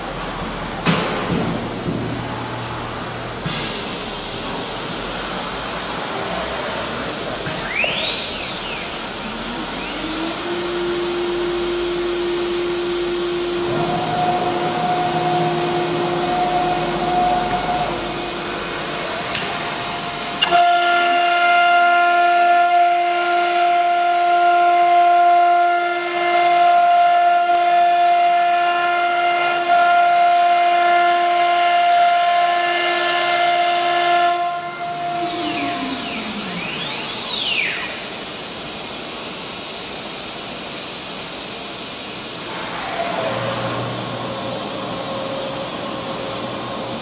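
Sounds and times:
cnc router spindle whine: 4.0s - 47.0s
vacuum pump rushing: 9.0s - 20.5s.

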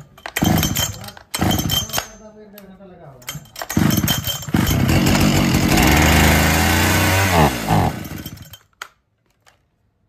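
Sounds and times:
chainsaw engine running: 3.8s - 8.6s.

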